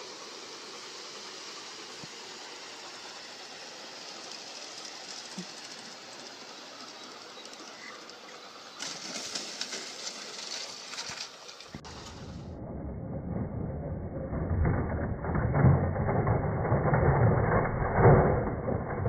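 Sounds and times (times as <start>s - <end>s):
steady hiss: 0.0s - 12.4s
model train cars rolling: 0.0s - 19.0s.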